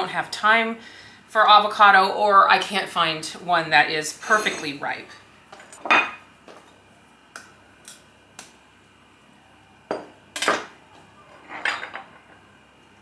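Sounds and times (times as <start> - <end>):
utensils clattering on dishes: 11.4 - 12.2.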